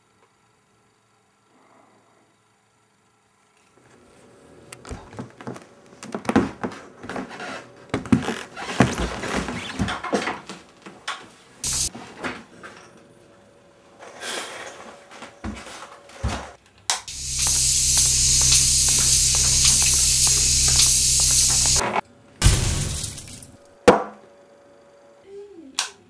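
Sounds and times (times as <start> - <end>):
footsteps in a room: 4.9 - 12.5, 14.8 - 21.8
faint steady hum: 17.1 - 22.3.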